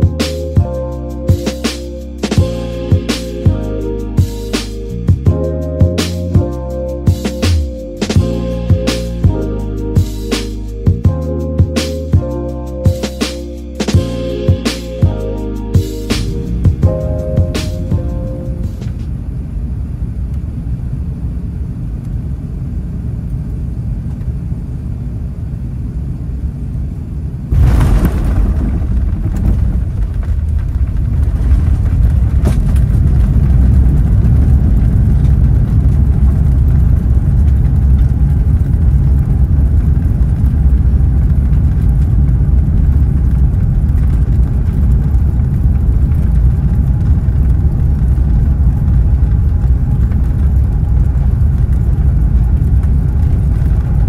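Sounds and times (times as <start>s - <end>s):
aircraft engine and airflow rumble: 12.1s - 54.0s
aircraft rolling on runway rumble: 27.2s - 54.0s.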